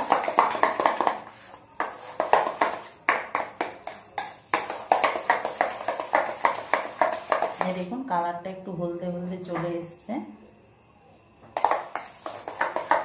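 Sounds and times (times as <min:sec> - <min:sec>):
spoon scraping metal bowl: 0:00.6 - 0:07.9.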